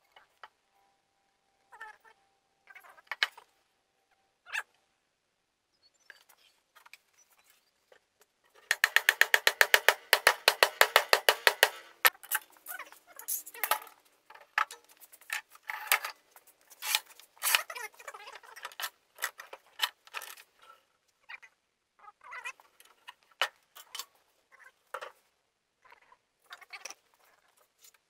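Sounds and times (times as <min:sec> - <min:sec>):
wood and metal knocks: 0:08.7 - 0:12.2.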